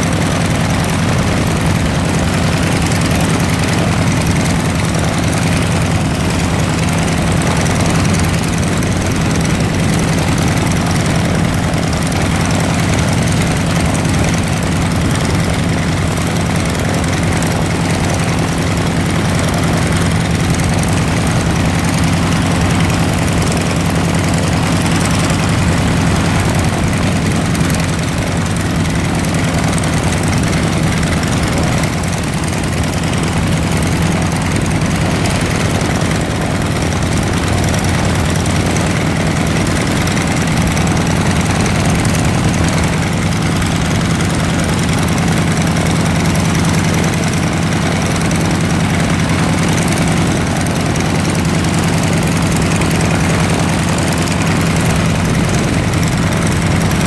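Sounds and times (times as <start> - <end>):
aircraft piston engine idling: 0.0 - 57.0.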